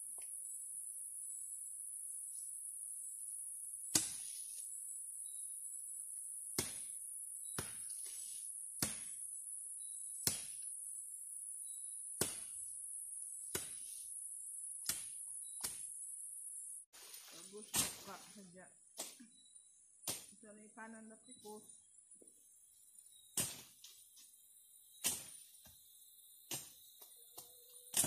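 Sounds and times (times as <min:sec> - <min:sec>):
blade chopping grass and weeds: 0:03.9 - 0:04.6, 0:06.5 - 0:09.2, 0:10.2 - 0:10.6, 0:12.1 - 0:12.7, 0:13.5 - 0:14.0, 0:14.8 - 0:15.9, 0:17.0 - 0:18.3, 0:20.0 - 0:20.4, 0:23.3 - 0:24.0, 0:25.0 - 0:25.7, 0:26.5 - 0:27.0.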